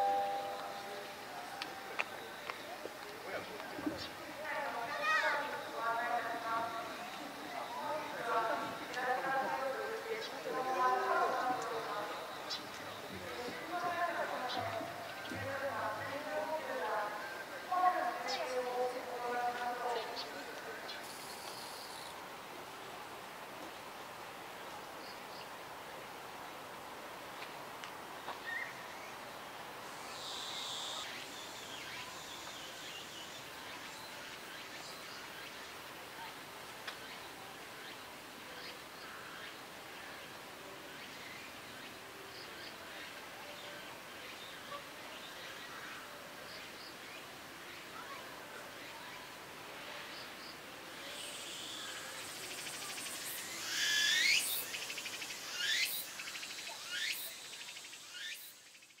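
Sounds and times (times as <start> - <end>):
small birds chirping: 9.4 - 17.4
cicada singing: 20.0 - 22.2, 29.8 - 35.7, 50.9 - 59.0
high insect buzz: 29.9 - 33.3, 51.0 - 59.0.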